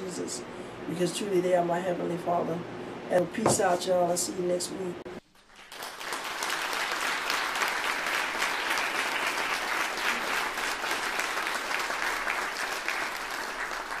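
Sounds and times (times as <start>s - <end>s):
crowd applauding: 5.4s - 14.0s.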